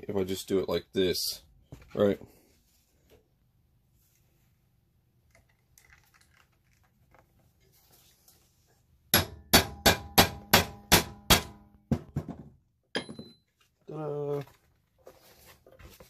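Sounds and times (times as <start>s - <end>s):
hammer clanging on metal tool: 13.0s - 13.4s
faint handling noises: 13.5s - 16.0s.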